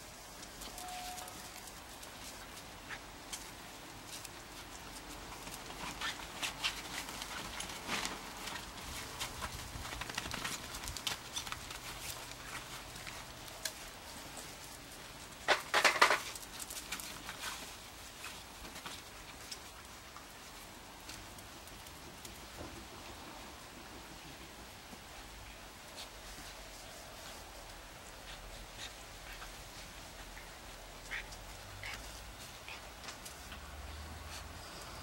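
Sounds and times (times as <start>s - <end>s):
puppy claws pattering on bricks: 0.3s - 20.3s.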